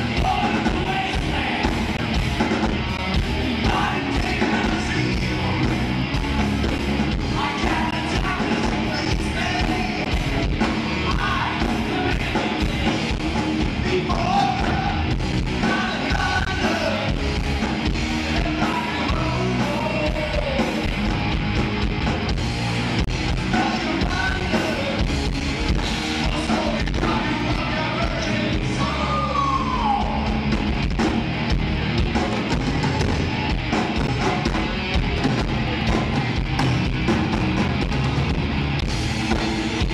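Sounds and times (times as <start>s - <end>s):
person yelling singing: 0.0s - 1.8s, 3.6s - 5.6s, 7.2s - 10.3s, 11.0s - 12.9s, 13.8s - 17.2s, 18.3s - 20.8s, 23.5s - 25.1s, 26.2s - 30.4s
live hard rock band: 0.0s - 39.9s.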